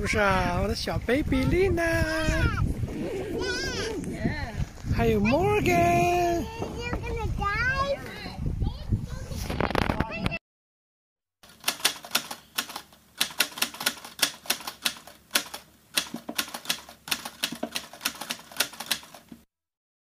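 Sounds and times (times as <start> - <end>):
typewriter key clacks: 11.5 - 19.4.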